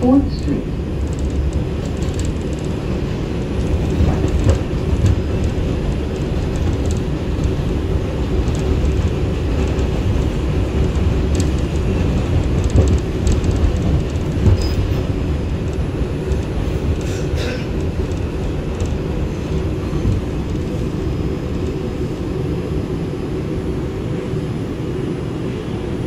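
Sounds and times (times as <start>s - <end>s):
subway train rumble: 0.0s - 26.0s.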